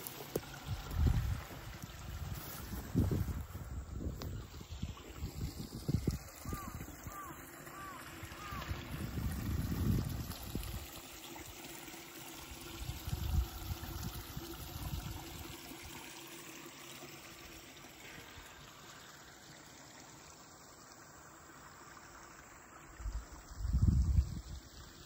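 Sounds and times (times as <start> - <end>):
wind buffeting microphone: 0.7 - 7.3, 8.4 - 10.9, 12.8 - 15.2, 23.2 - 24.6.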